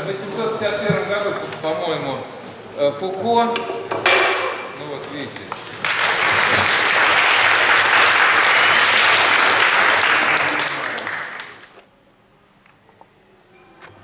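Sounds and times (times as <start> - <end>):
audience applauding: 5.5 - 11.8.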